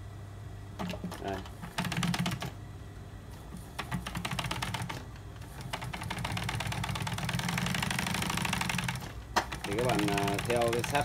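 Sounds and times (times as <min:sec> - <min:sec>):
sewing machine motor hum: 0:00.8 - 0:02.6, 0:03.6 - 0:11.0
sewing machine needle clicking: 0:05.6 - 0:11.0.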